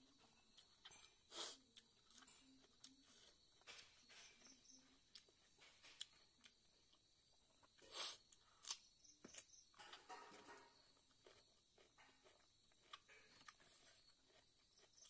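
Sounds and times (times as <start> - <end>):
chewing and mouth clicks: 0.5 - 3.9, 7.6 - 15.0.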